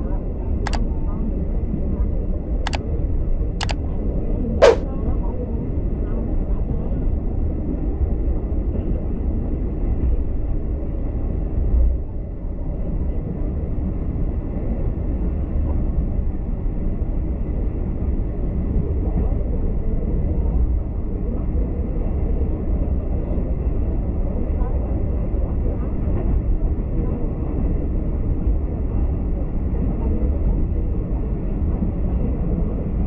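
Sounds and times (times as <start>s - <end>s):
train rumbling on track: 6.6s - 33.0s.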